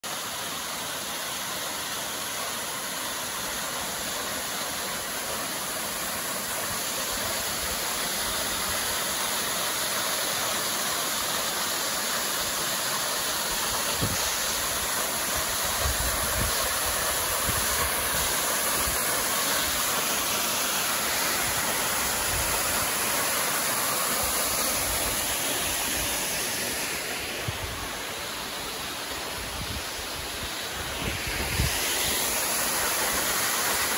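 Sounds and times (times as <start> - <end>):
waterfall rushing onto rocks: 0.0 - 33.9
wind on microphone: 14.0 - 14.4, 15.6 - 19.0, 29.4 - 32.2.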